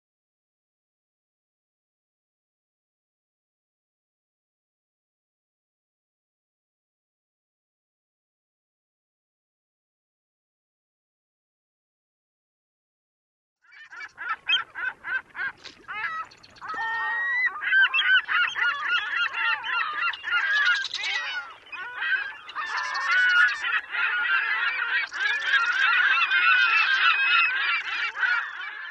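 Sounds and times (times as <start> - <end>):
flock of birds calling: 13.7 - 28.9.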